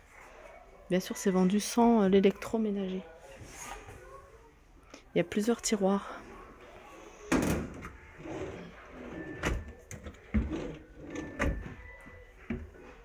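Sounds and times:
drawers opening and closing: 7.3 - 13.0.

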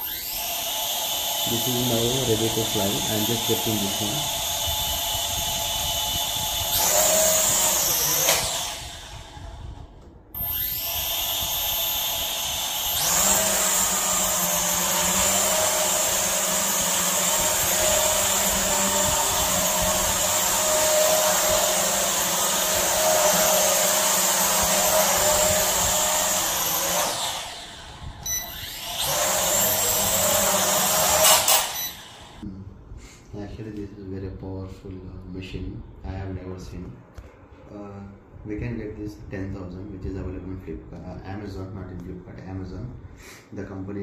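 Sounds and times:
drone propellers whirring: 0.0 - 32.4.

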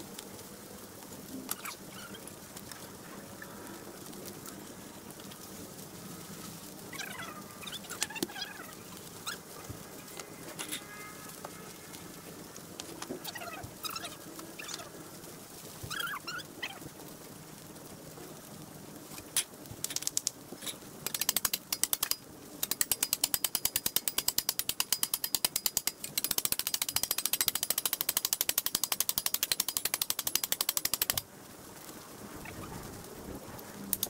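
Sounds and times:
rapid mechanical clicking: 21.0 - 31.2.

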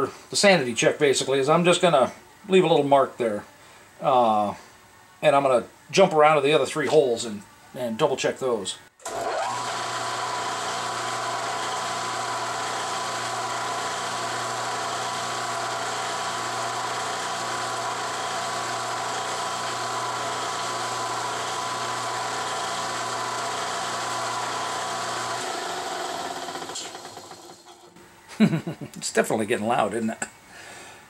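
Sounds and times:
mill-drill motor humming and whining: 9.1 - 27.9.

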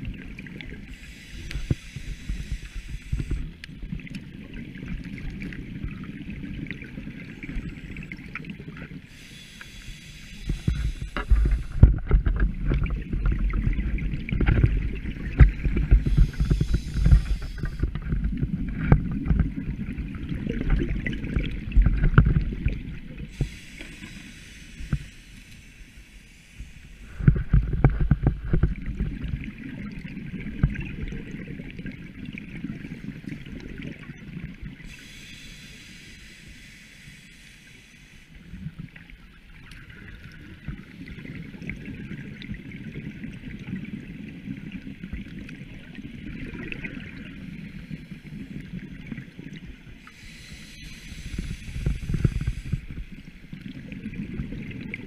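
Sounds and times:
exhaled air bubbling: 0.0 - 55.0
regulator hissing inhalations: 0.9 - 3.6, 9.1 - 11.9, 15.9 - 17.9, 23.3 - 27.2, 34.8 - 38.4, 50.0 - 53.0.

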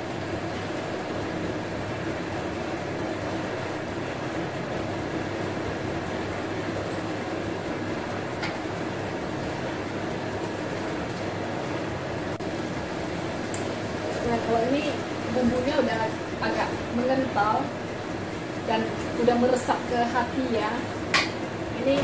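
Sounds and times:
food cooking in a pan: 0.0 - 22.0
steady machine hum: 0.0 - 22.0.

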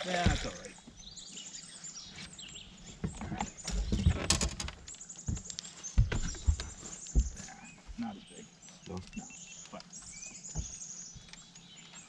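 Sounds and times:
birds chirping: 0.0 - 12.0
gear clicks and thumps: 3.0 - 7.4.

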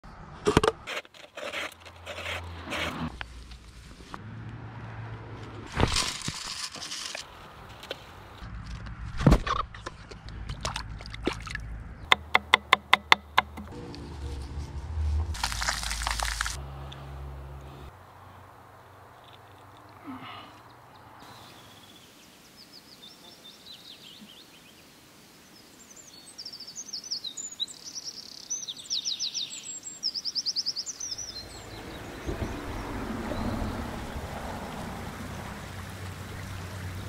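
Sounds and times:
scrapes and knocks: 0.4 - 4.2
squeeze bottle squirting: 15.3 - 16.6.

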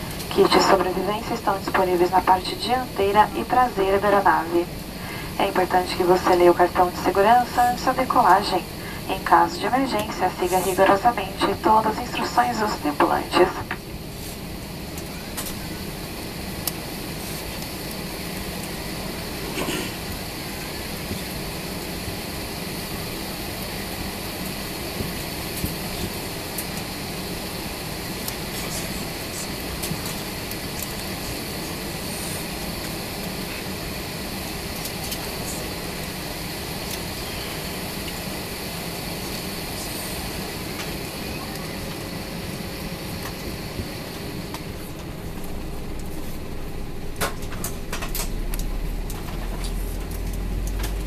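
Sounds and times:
aircraft engine hum: 0.0 - 15.0, 37.6 - 51.0
air-conditioning hiss: 0.0 - 51.0.

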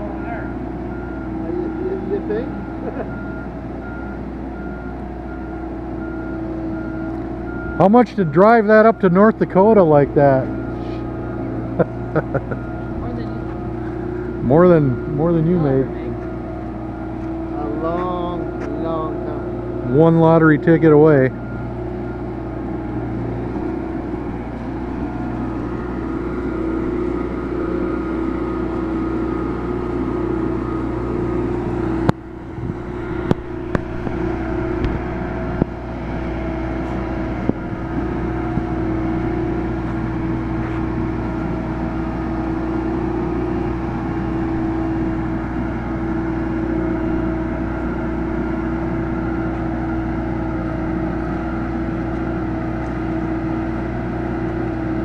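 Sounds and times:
boat hoist engine drone: 0.0 - 55.0.

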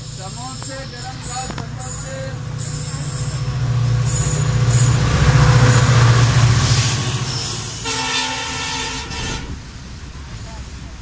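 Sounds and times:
train horn: 0.0 - 9.6
diesel locomotive engine drone: 0.0 - 11.0.

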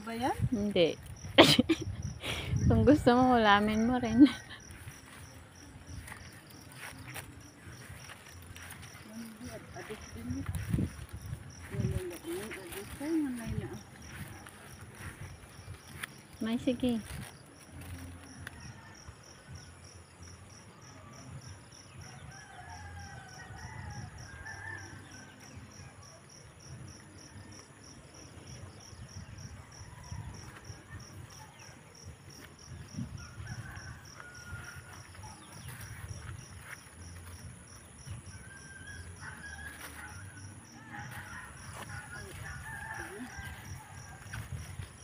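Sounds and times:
crickets chirping: 0.0 - 45.0
leaves rustling: 3.4 - 18.6, 38.4 - 45.0
rooster crowing: 22.1 - 25.3, 33.2 - 35.8, 38.3 - 44.7.

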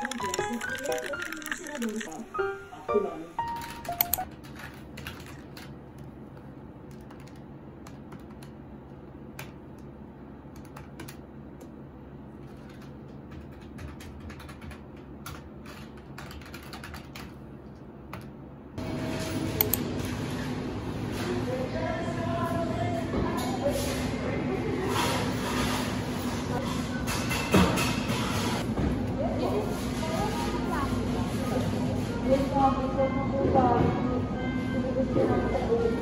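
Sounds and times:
coffee shop background noise: 0.0 - 4.4, 18.8 - 36.0
keyboard key clicks: 3.5 - 4.3.

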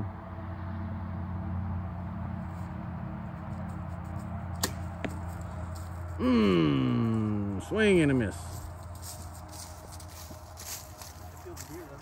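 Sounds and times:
steady low hum: 0.0 - 12.0
arrow knock landing: 4.6 - 5.2.

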